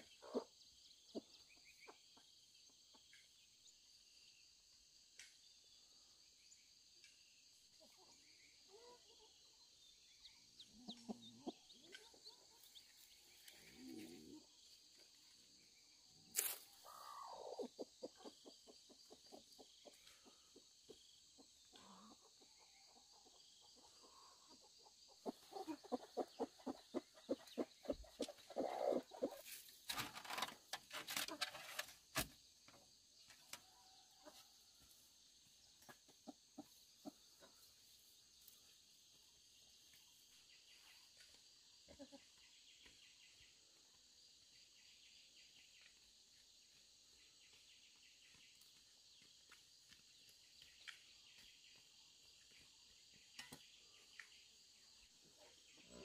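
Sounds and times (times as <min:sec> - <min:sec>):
chickens clucking: 0:00.0 - 0:03.4, 0:10.4 - 0:15.1, 0:16.4 - 0:38.6, 0:39.8 - 0:42.9.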